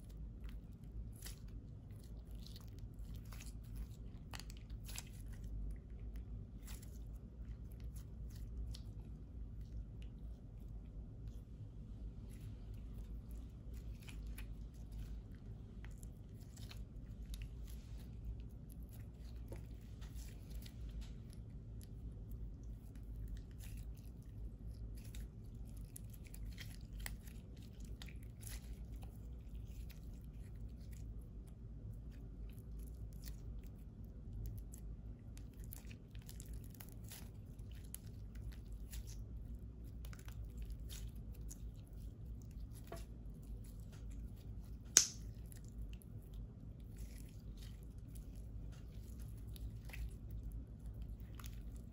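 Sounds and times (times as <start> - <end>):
slime squelching and clicking: 12.3 - 51.9.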